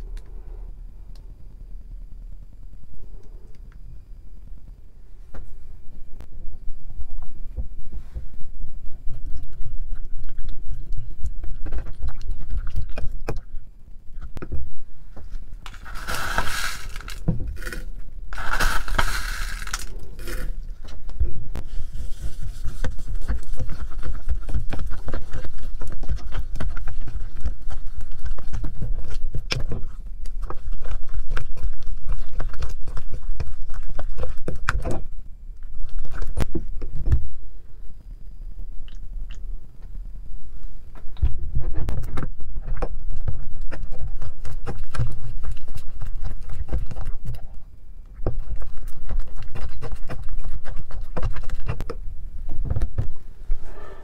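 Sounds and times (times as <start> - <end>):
spoon scraping gritty mixture: 15.3 - 21.0, 21.6 - 34.8.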